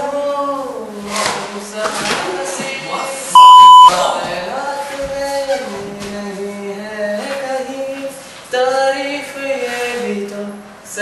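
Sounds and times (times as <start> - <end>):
censor bleep: 3.4 - 3.9.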